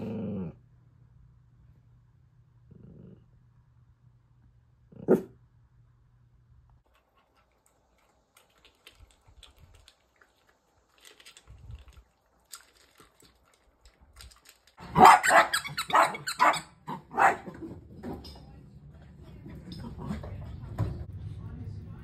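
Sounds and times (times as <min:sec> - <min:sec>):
dog barking loudly: 0:14.8 - 0:17.5.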